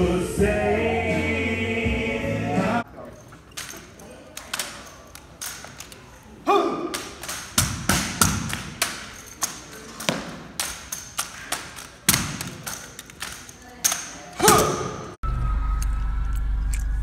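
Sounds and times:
hands slapping rifle stocks: 0:06.9 - 0:14.6
rifle butts striking concrete: 0:06.9 - 0:14.9.

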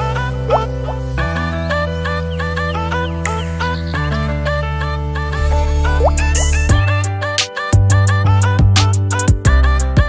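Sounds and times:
deep bass line: 0:05.4 - 0:07.2.

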